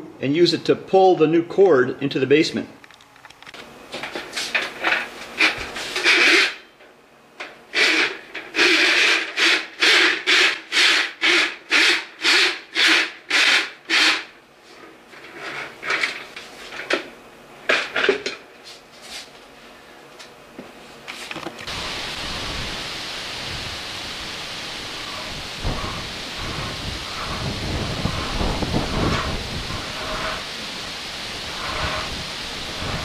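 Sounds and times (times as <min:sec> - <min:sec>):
steel cable rasping in pipe: 0:05.4 - 0:06.7, 0:07.7 - 0:14.3, 0:24.9 - 0:30.6, 0:31.4 - 0:33.0.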